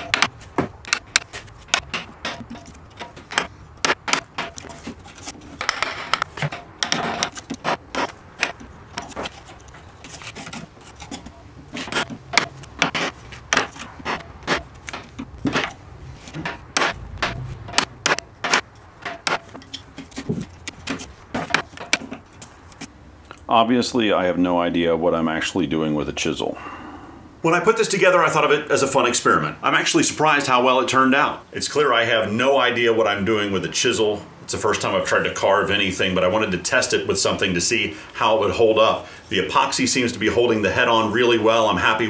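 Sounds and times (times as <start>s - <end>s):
chisel scraping through wood: 0.0s - 22.9s
mallet knocking a wood chisel: 11.0s - 22.2s.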